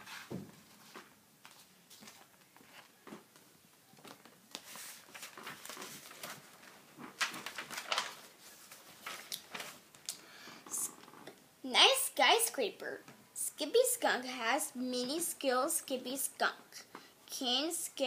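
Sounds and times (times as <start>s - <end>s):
book pages rustling: 0.0s - 10.1s.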